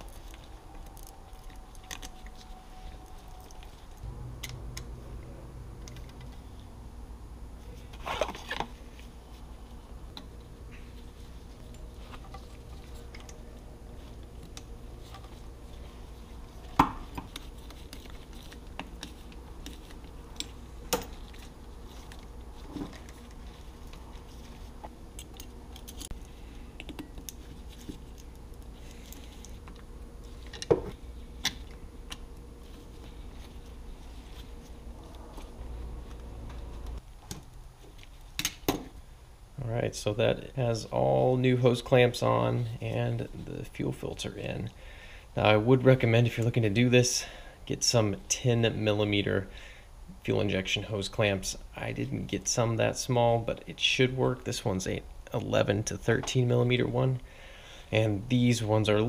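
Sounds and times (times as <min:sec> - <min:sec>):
steady low hum: 0:00.0 - 0:59.0
clicks and knocks of parts handled: 0:24.8 - 0:32.3, 0:37.2 - 0:39.0.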